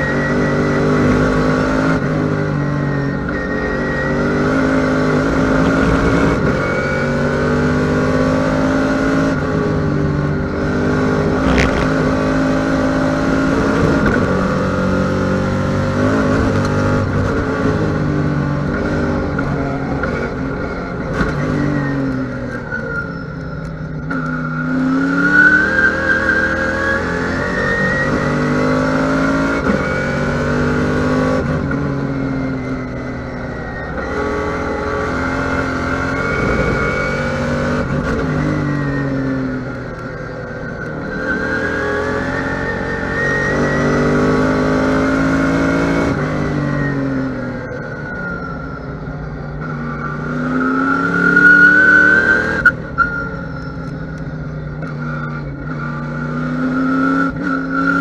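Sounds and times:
race car engine accelerating: 0.0 - 23.2.

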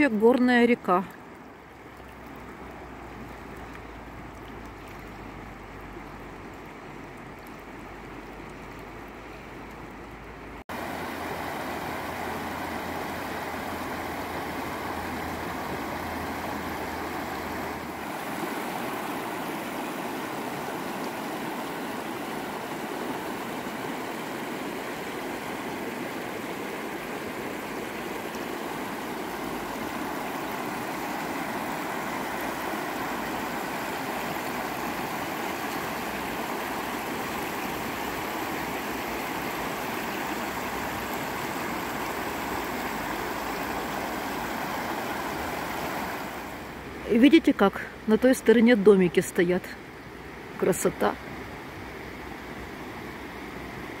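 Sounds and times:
river water rushing over stones: 0.0 - 54.0.

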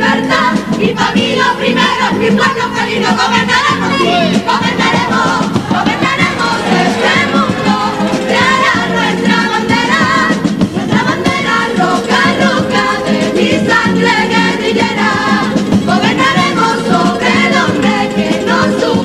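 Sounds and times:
bass drum and snare beat: 0.0 - 19.0
choir singing in harmony: 0.0 - 19.0
guitars: 0.0 - 19.0.

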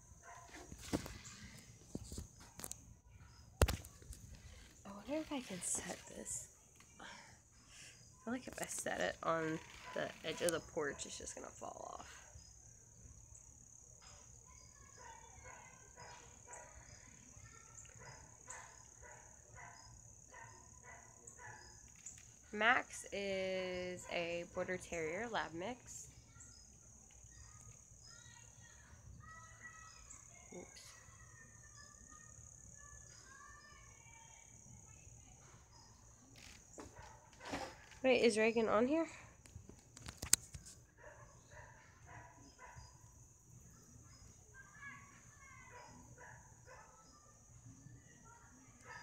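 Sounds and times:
crickets chirring: 0.0 - 49.0.

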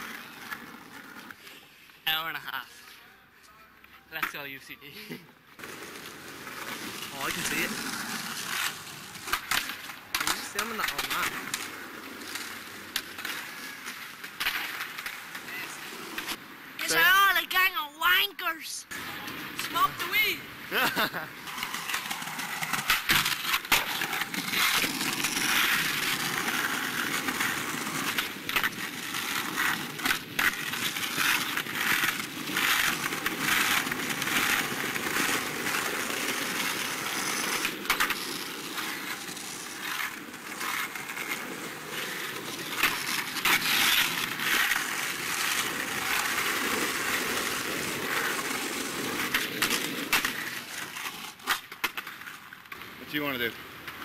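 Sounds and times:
skateboard wheels rolling on paving: 0.0 - 54.0
skateboard clacking on ground: 5.6 - 16.4, 21.4 - 53.0.

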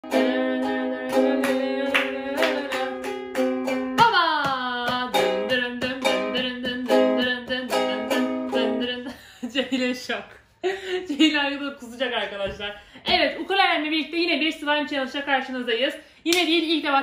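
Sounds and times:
ukulele strumming: 0.0 - 9.2
woman singing: 0.0 - 9.2.

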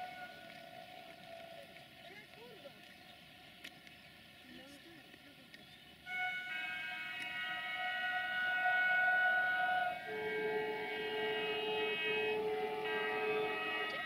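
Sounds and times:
train air horn blasts: 0.0 - 0.9, 6.1 - 14.0.

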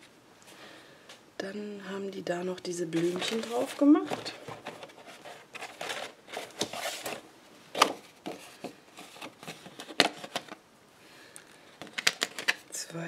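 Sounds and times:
paper rustling: 2.9 - 10.6.

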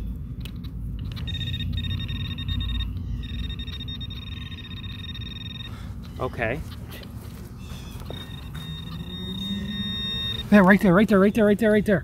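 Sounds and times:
metal detector high tone: 1.2 - 6.7, 7.7 - 11.5.

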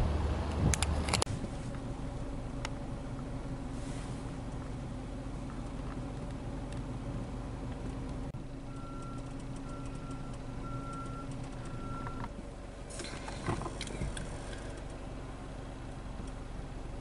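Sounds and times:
electronic beeps: 8.7 - 12.3
car driving on wet road: 9.2 - 17.0.

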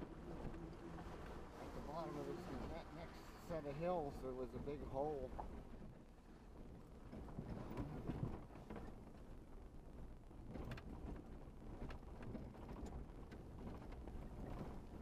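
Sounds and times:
truck driving on dirt trail: 0.0 - 15.0.

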